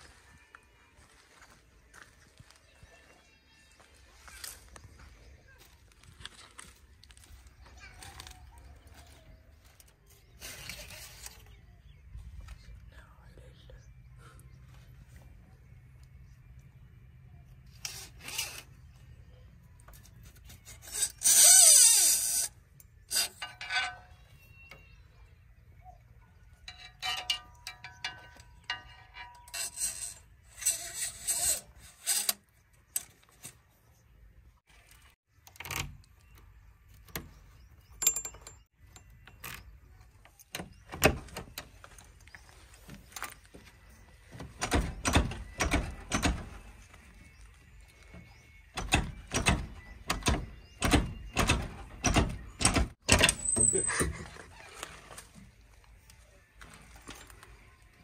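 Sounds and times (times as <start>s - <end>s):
screwdriver scraping metal: 19.9s - 24.6s, 26.7s - 33.6s.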